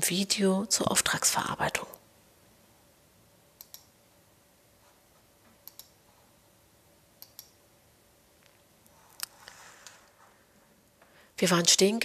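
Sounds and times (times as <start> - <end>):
computer mouse clicking: 3.6 - 3.9, 5.6 - 6.0, 7.2 - 7.6.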